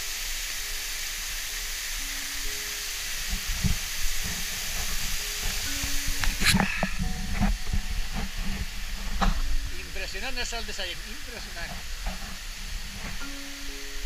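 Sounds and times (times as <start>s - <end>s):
slow background music: 0.0s - 14.0s
waterfall hissing: 0.0s - 14.0s
low thumps: 3.3s - 13.4s.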